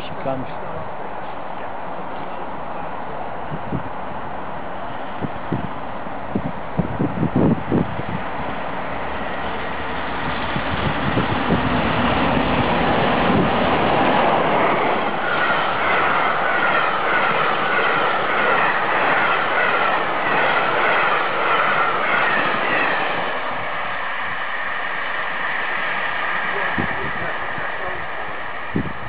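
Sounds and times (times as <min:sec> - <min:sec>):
heavy train rumble: 0:00.0 - 0:29.0
train wheels clattering on rails: 0:07.4 - 0:24.1.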